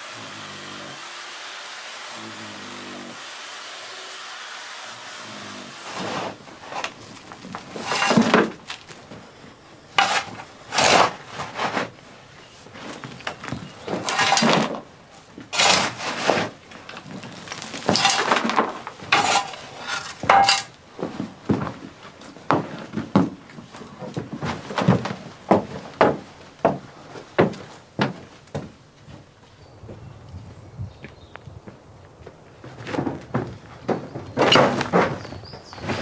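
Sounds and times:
shovel scraping into soil: 0:05.8 - 0:07.0, 0:07.7 - 0:08.8, 0:10.0 - 0:11.9, 0:13.8 - 0:14.8, 0:15.5 - 0:16.6, 0:17.3 - 0:20.7.

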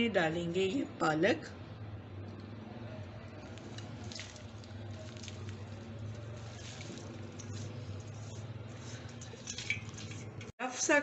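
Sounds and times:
wet leaves rustling and squishing: 0:03.4 - 0:10.5
spatula scraping colander: 0:03.5 - 0:10.5.

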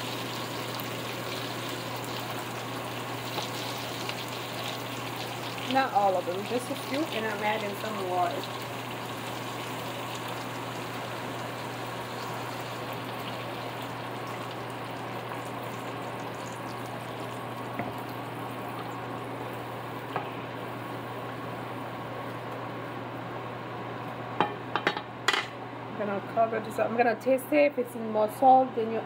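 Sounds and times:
broth bubbling in a pan: 0:00.0 - 0:23.2
low steady hum: 0:00.0 - 0:29.0.

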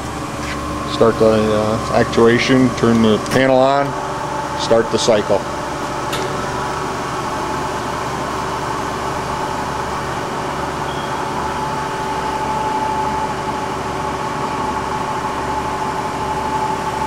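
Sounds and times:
grinding machine hum and whine: 0:00.0 - 0:17.0.

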